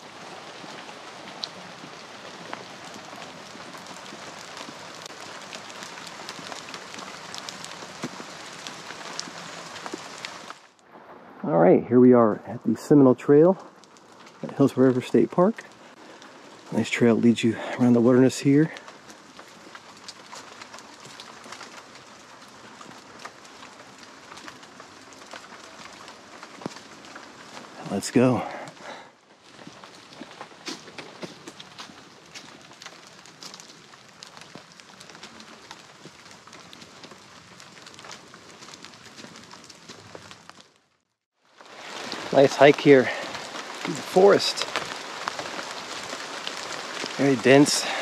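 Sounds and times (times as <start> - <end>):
water drips and splashes: 0.0 - 10.8, 13.3 - 40.8, 41.5 - 48.0
steady forest hiss: 0.0 - 40.4, 41.4 - 48.0
water rushing: 41.7 - 48.0.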